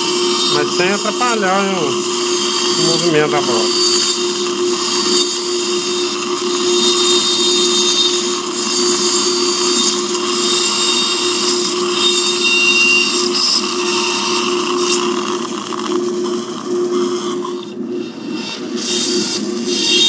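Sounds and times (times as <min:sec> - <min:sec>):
dental drill whining: 0:00.0 - 0:15.7.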